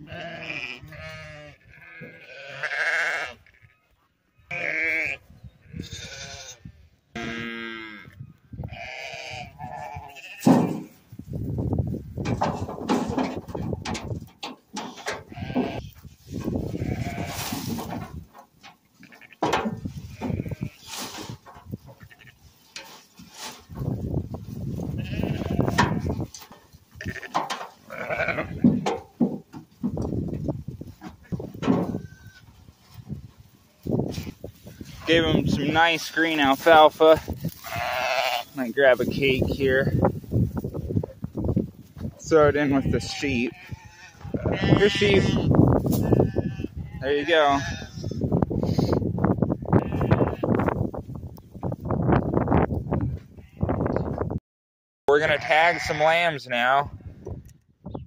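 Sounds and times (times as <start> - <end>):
sheep bleating: 0.0 - 10.7, 15.1 - 16.0, 16.6 - 17.6, 19.0 - 20.9, 22.0 - 22.4, 24.9 - 26.1, 27.0 - 28.8, 31.2 - 32.5, 37.6 - 38.8, 42.5 - 48.3, 49.8 - 50.6, 55.1 - 56.3
hay rustling: 15.9 - 18.3, 19.9 - 27.1, 32.5 - 42.5.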